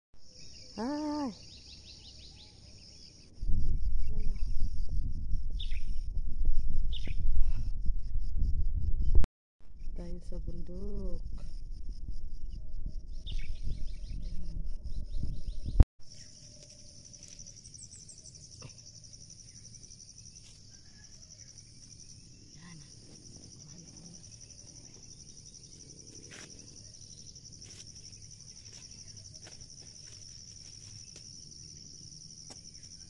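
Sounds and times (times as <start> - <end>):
crickets chirping: 0.2 - 9.1, 9.7 - 33.0
wind buffeting microphone: 3.3 - 15.8.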